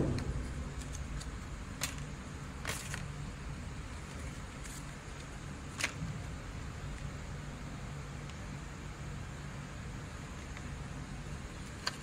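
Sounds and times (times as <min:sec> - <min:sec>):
steady low rumble: 0:00.0 - 0:07.9.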